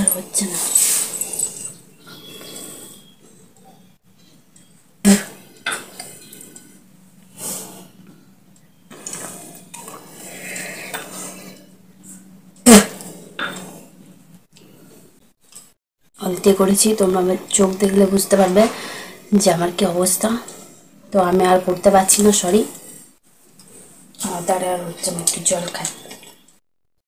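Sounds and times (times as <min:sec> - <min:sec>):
soft rustling: 0:00.1 - 0:01.8.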